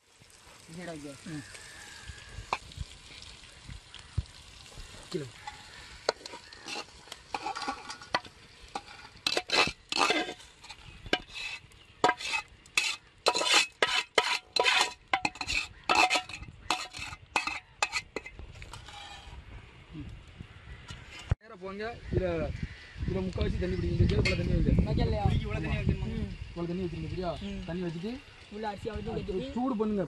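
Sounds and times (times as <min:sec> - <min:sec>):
metal spoon scraping pot: 0:05.4 - 0:19.4.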